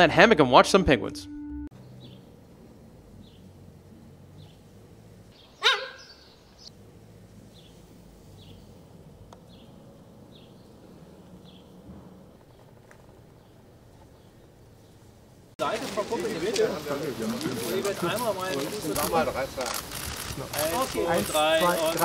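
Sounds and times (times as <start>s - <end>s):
high yelping animal call: 5.6s - 6.2s.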